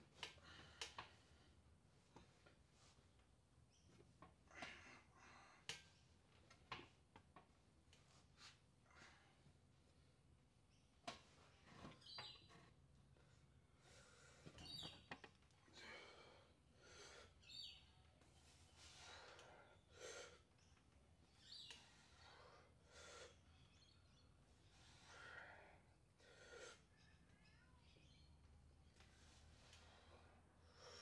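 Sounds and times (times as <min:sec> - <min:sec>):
faint bird chirps: 0:03.6 - 0:04.0, 0:10.0 - 0:13.9, 0:14.6 - 0:15.2, 0:17.2 - 0:25.8, 0:26.4 - 0:31.0
heavy breathing: 0:15.6 - 0:17.4, 0:21.8 - 0:23.5, 0:24.6 - 0:26.9.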